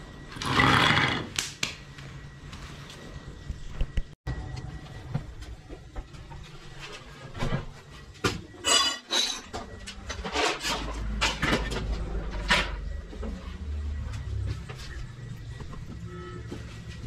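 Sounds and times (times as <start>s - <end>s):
hand tools clinking and scraping: 8.5s - 12.9s.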